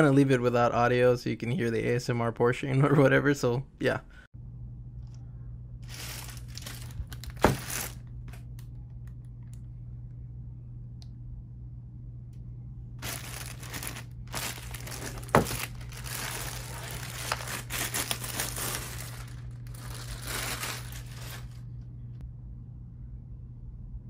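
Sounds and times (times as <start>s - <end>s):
steady low hum: 0.0s - 24.0s
plastic bag crinkling: 5.8s - 8.4s, 13.0s - 21.6s
plastic bag snap: 5.9s - 8.7s, 13.0s - 21.6s.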